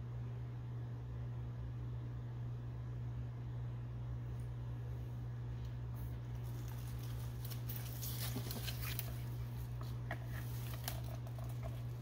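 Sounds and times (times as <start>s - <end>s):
steady low hum: 0.0s - 12.0s
dry leaves rustling: 6.2s - 12.0s.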